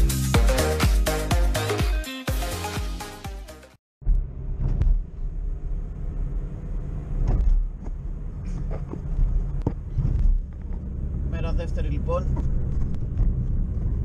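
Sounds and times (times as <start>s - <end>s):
engine and road rumble: 4.0s - 14.0s.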